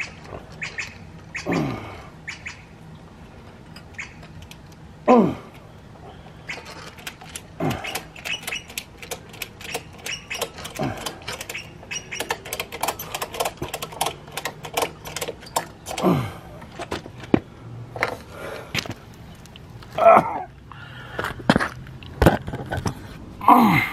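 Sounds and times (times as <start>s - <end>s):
metal ratchet clicks: 6.5s - 16.1s.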